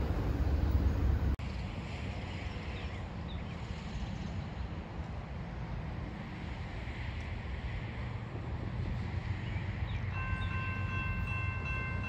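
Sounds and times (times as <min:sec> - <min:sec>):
freight train rumble: 0:00.0 - 0:01.4, 0:07.6 - 0:12.0.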